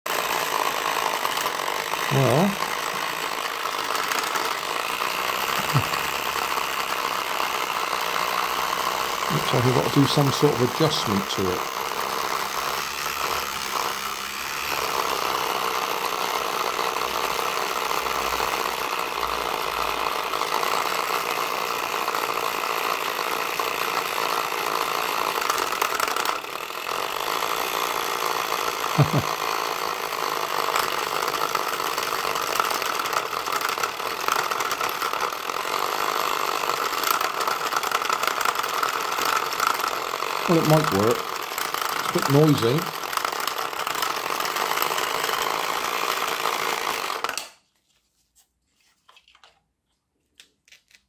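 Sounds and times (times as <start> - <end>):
small electric motor whirring: 0.0 - 47.8.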